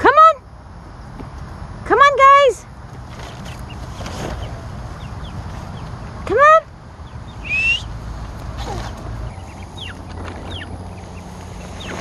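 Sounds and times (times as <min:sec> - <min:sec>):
ducklings peeping: 0:03.2 - 0:12.0.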